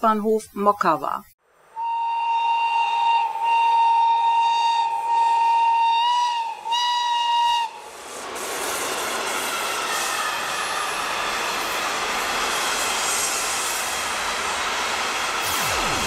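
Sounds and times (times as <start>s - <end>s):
locomotive horn blasts: 1.7s - 7.8s
train wheels on rails: 5.1s - 16.0s.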